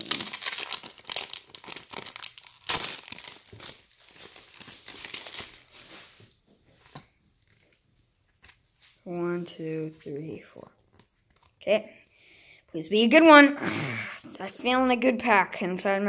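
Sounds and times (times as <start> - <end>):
foil wrapper tearing and crinkling: 0.0 - 6.2.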